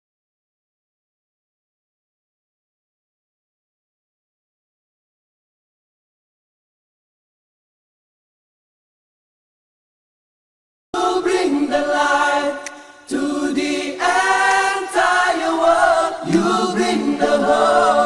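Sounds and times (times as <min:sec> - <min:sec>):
a cappella group singing in harmony: 0:11.0 - 0:18.0.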